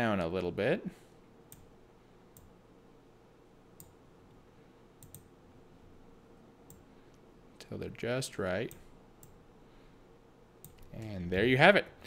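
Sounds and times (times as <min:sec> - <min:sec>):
low steady room hum: 0:00.0 - 0:12.0
faint computer mouse clicks: 0:03.8 - 0:04.0, 0:05.0 - 0:05.3.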